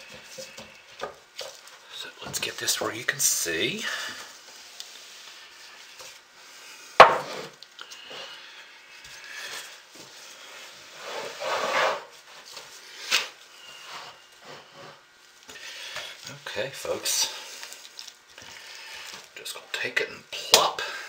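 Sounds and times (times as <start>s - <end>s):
scraping shuffle on countertop: 3.8s - 7.6s, 9.1s - 15.1s
sharp knock on countertop: 7.0s - 7.3s.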